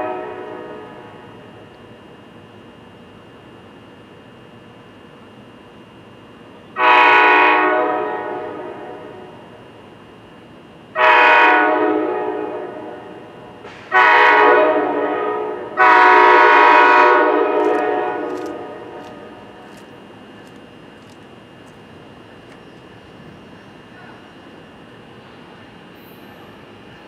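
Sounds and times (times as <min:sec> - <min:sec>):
train horn blasts: 0:00.0 - 0:01.4, 0:06.8 - 0:09.5, 0:10.9 - 0:19.6.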